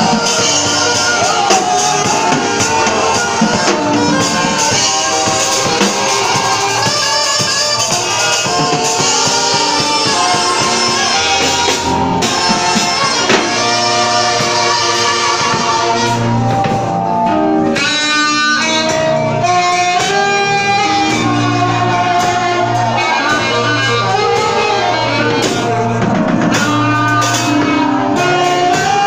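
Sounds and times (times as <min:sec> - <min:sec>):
bass: 0:00.0 - 0:29.0
drums: 0:00.0 - 0:29.0
saxophone melody: 0:00.0 - 0:29.0.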